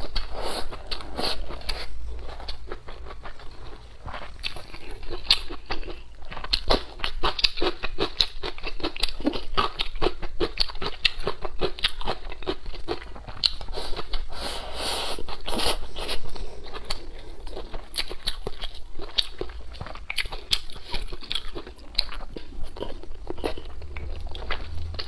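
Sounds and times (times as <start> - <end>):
person chewing with wet smacking: 0.0 - 25.0.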